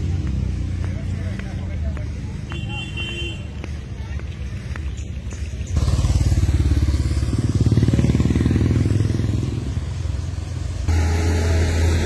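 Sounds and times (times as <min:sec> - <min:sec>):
motorcycle engine passing: 0:05.6 - 0:12.0.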